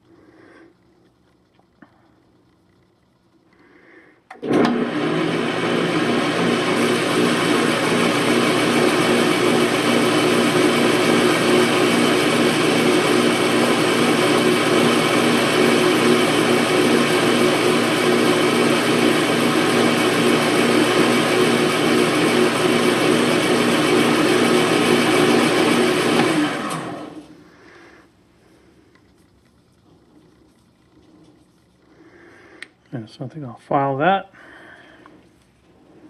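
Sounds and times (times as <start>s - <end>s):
metal lathe running: 4.4s - 27.3s.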